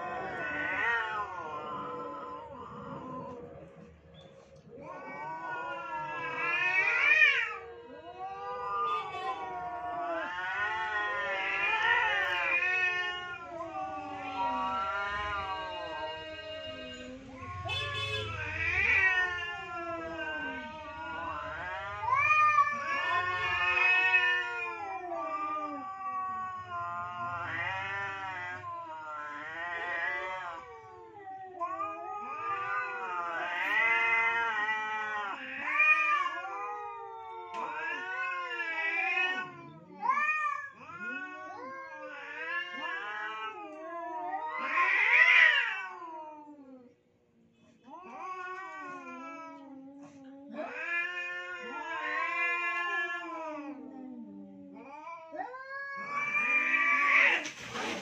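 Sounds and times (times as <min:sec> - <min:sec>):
cats yowling: 0:00.0 - 0:47.1, 0:47.8 - 0:58.0.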